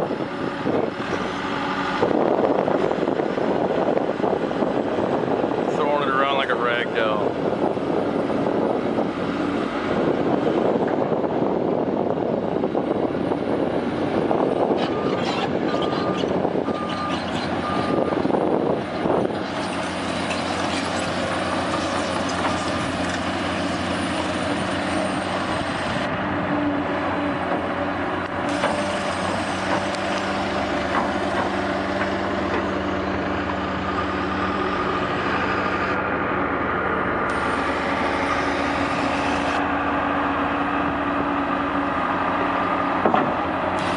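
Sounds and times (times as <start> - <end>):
heavy diesel engines running: 0.0 - 43.9
loud rushing noise: 34.2 - 41.5.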